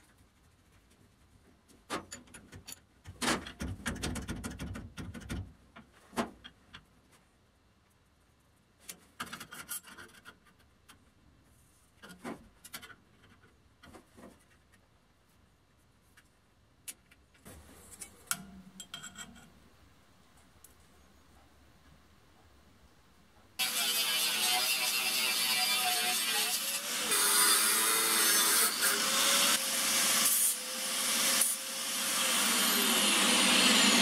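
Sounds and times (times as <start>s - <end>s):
metal tools clicking and knocking: 17.9s - 19.6s.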